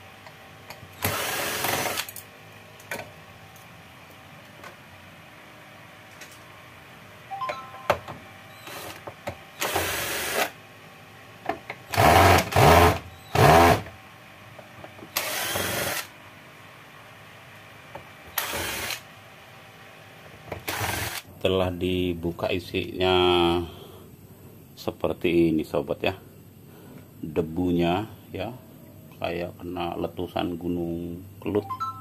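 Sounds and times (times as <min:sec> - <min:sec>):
power screwdriver whining: 0:01.0 - 0:02.2, 0:08.6 - 0:09.0, 0:09.6 - 0:10.5, 0:15.1 - 0:16.1, 0:18.3 - 0:19.0, 0:20.6 - 0:21.2.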